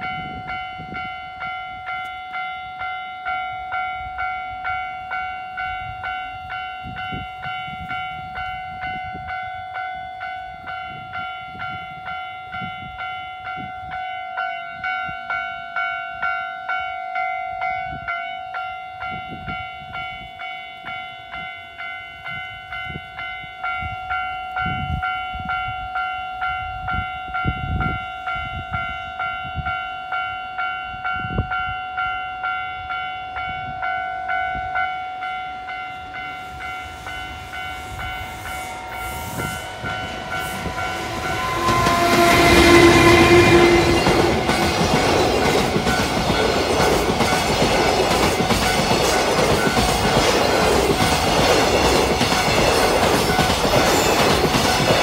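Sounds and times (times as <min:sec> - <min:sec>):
level crossing warning bell: 0:00.0 - 0:55.0
low rumbling gusts: 0:36.4 - 0:55.0.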